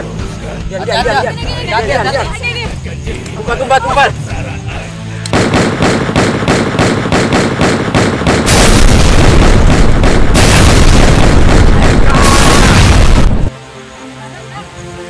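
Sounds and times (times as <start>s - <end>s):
automatic gunfire: 5.3s - 12.8s
explosion blast: 7.2s - 13.5s.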